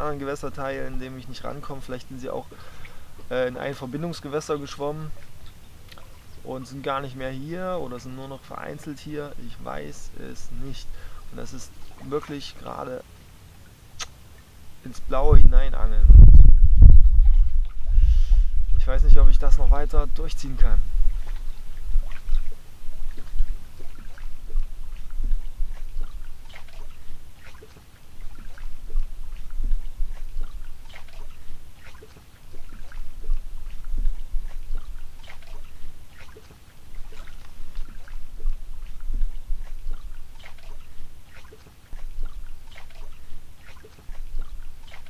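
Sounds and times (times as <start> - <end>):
water lapping at lake edge: 0.0 - 45.0
low rumble: 15.2 - 27.4, 28.2 - 31.8, 32.6 - 36.0, 37.4 - 40.2.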